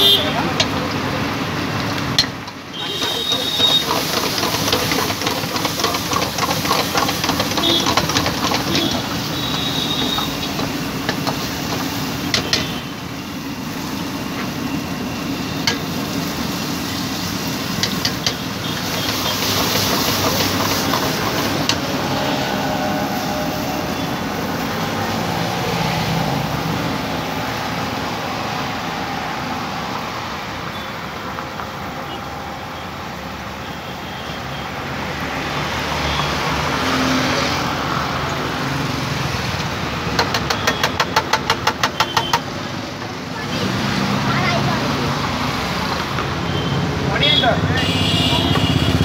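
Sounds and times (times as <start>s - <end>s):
gas burner roaring: 0.0s - 32.0s
food sizzling in pan: 2.8s - 24.6s.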